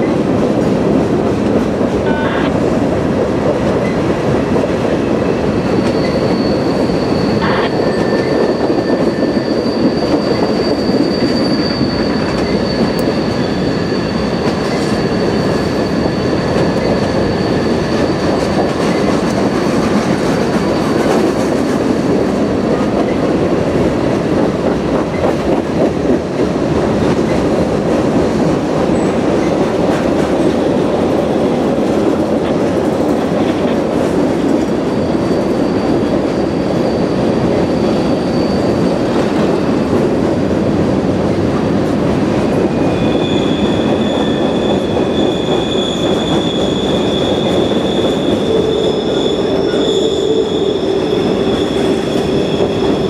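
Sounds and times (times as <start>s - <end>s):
freight train cars rolling: 0.0s - 53.0s
high wheel squeal: 5.6s - 18.7s, 34.6s - 39.8s, 42.7s - 53.0s.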